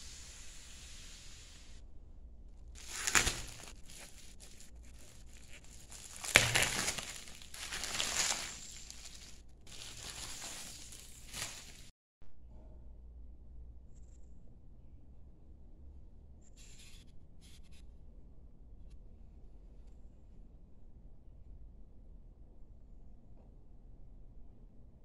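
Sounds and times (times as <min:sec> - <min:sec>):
bubble wrap crinkling: 0:02.7 - 0:11.9.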